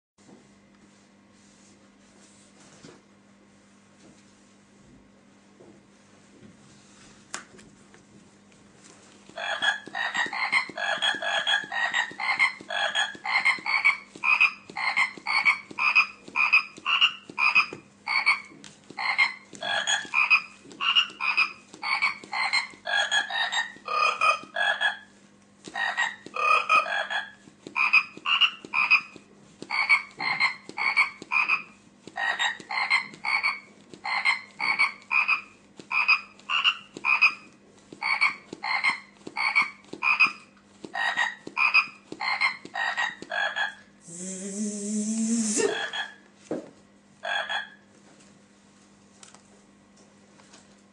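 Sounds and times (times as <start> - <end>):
electronic frog croaks: 9.4 - 25.0, 25.8 - 29.1, 47.2 - 47.8.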